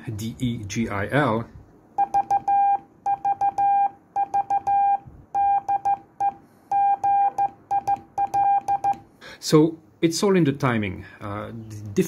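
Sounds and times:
morse code beeps: 2.0s - 9.0s.

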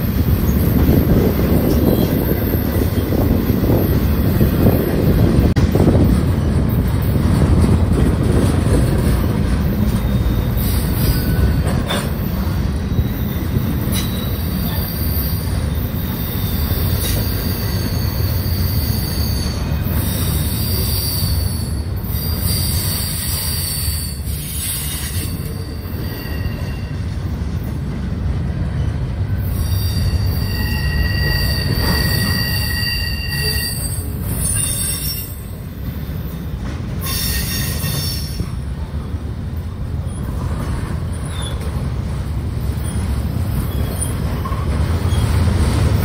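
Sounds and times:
heavy rumble of train wheels: 0.0s - 46.0s
high-pitched wheel squeals: 9.9s - 27.0s, 29.4s - 35.6s, 37.0s - 38.4s, 42.7s - 45.4s.

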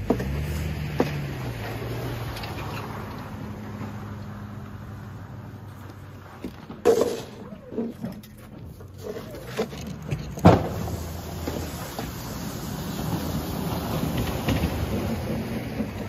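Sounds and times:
sharp knocks and scrapes: 0.0s - 4.0s, 5.8s - 12.3s.

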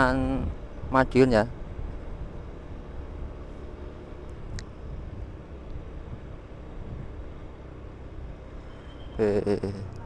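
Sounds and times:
road noise: 0.0s - 10.0s
high chirp: 8.6s - 9.4s.

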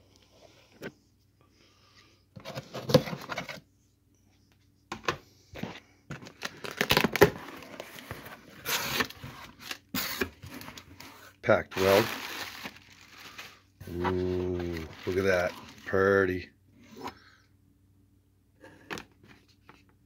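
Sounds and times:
cardboard flaps rustling and scraping: 13.8s - 16.1s.

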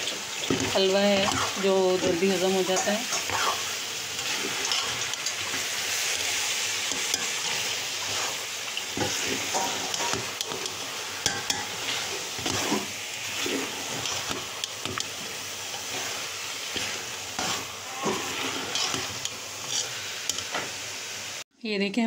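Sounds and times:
frying sizzle: 0.0s - 21.5s
spatula scraping metal pot: 0.3s - 20.6s.

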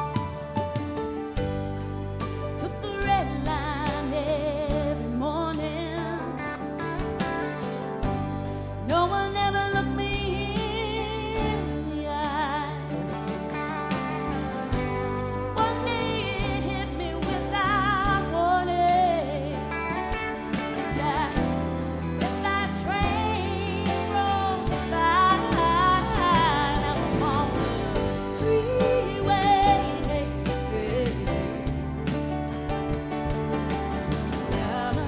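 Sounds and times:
bass guitar: 0.0s - 35.0s
electric guitar: 0.0s - 35.0s
woman singing with vibrato: 2.6s - 6.9s, 8.8s - 13.0s, 15.5s - 19.9s, 20.7s - 32.0s, 34.4s - 35.0s.

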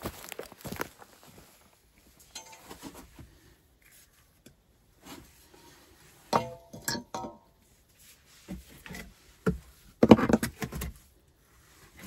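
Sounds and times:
faint knocks and rustles: 2.1s - 11.1s.

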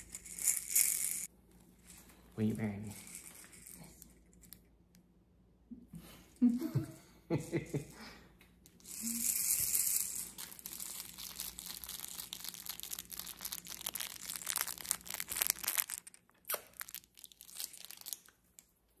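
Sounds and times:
baby rattle beads rattling: 0.0s - 1.3s, 2.8s - 4.5s, 8.8s - 16.2s.

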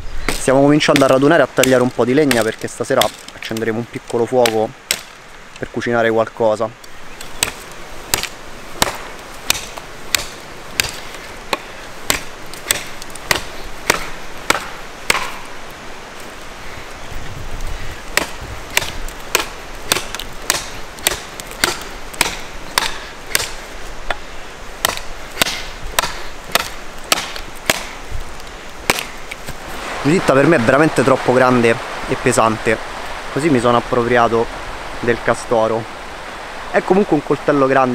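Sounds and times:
knife chopping into wood: 4.4s - 5.1s, 7.4s - 15.5s, 18.1s - 23.6s, 24.8s - 28.0s, 28.9s - 29.6s.

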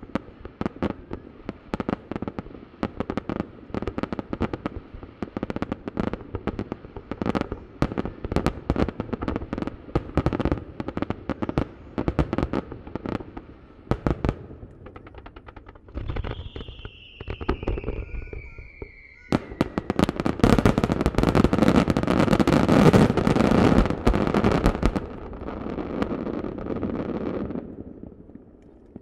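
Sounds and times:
distant fireworks bursting: 0.0s - 29.0s
long falling whistle: 16.1s - 20.8s.

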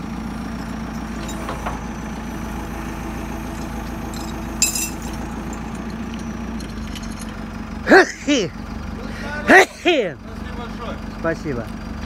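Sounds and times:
diesel engine idling: 0.0s - 12.0s
metallic chain clink: 3.6s - 7.4s.

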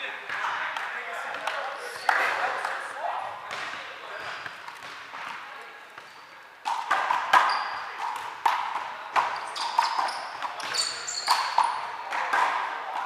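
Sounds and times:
sneakers squeaking on floor: 1.3s - 12.7s.

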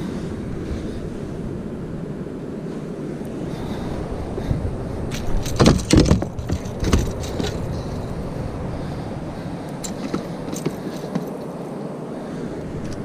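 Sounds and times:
wind: 0.0s - 13.0s
fish thumping on boat floor: 5.2s - 7.7s.

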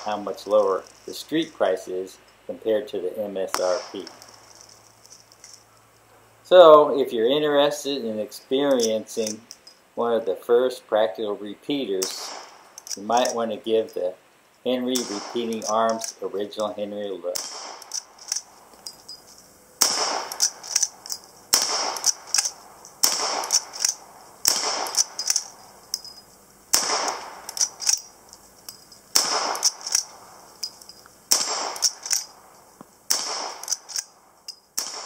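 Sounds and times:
rifle shots: 3.5s - 4.3s, 12.0s - 13.0s, 14.9s - 16.0s, 17.3s - 18.5s, 19.8s - 20.9s, 21.5s - 25.5s, 26.7s - 28.1s, 29.1s - 30.2s, 31.3s - 32.4s, 33.1s - 34.1s, 34.8s - 35.0s.

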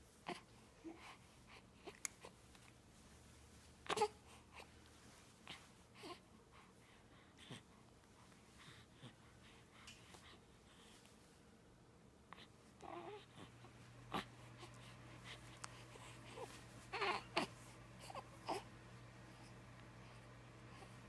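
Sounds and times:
baby cooing: 12.3s - 13.5s, 15.7s - 18.7s.

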